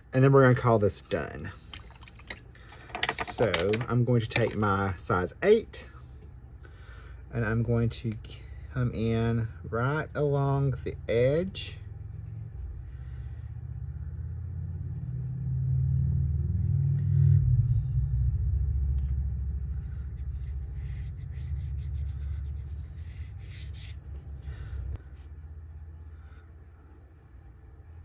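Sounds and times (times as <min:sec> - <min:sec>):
low steady rumble: 0:00.0 - 0:28.0
faint scratchy strokes: 0:19.6 - 0:25.3.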